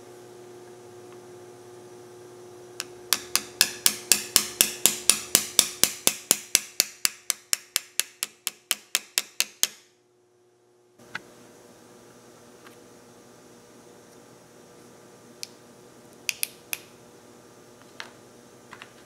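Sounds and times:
hammer tapping a pin punch: 2.8 - 9.9.

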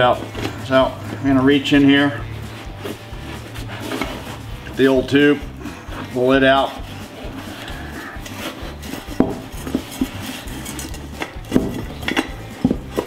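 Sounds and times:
rubber scraping against tire rim: 0.0 - 13.0
wheel knocking on workbench: 9.0 - 10.2, 11.0 - 13.0.

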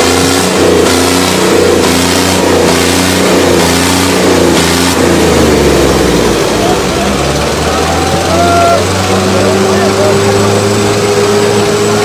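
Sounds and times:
tractor engine revving: 0.0 - 12.0.

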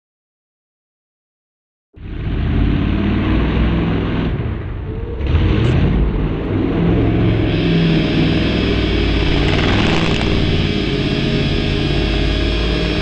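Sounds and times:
engine revving in mud: 2.0 - 4.4, 9.1 - 10.9.

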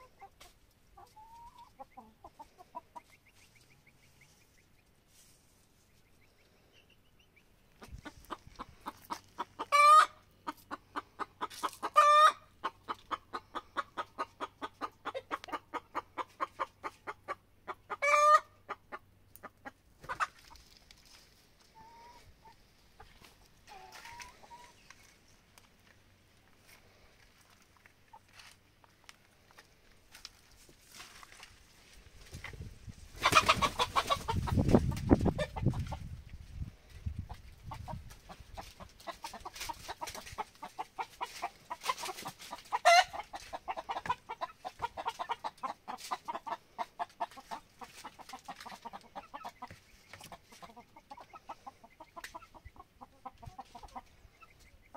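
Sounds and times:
hen cackling: 1.0 - 3.2, 7.0 - 20.6, 33.2 - 35.9, 37.7 - 54.9.

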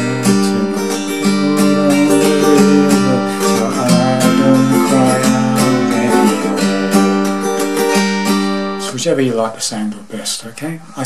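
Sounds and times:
acoustic guitar strumming: 0.0 - 9.4.

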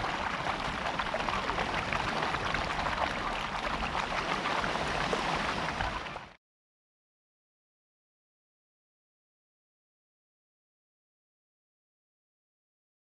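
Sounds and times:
surf washing over pebbles: 0.0 - 6.2.

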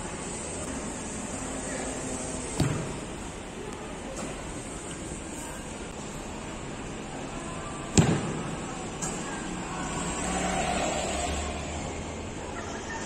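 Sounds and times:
football kicked hard: 2.6 - 3.1, 7.9 - 8.4.

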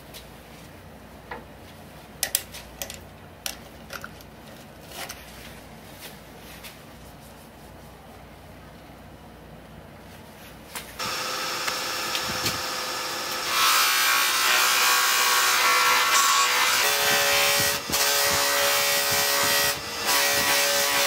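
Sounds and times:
buffing wheel whirring hiss: 11.0 - 13.5.

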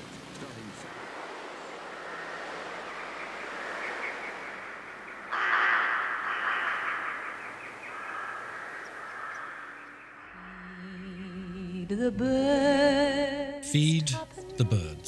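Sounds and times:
flock of birds chattering: 0.1 - 10.6.

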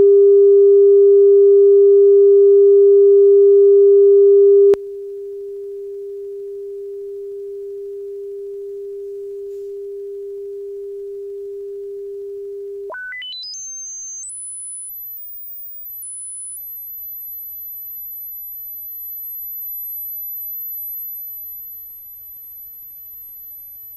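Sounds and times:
steady pure test tone: 4.6 - 23.9
rising stepped test tones: 12.8 - 23.9.

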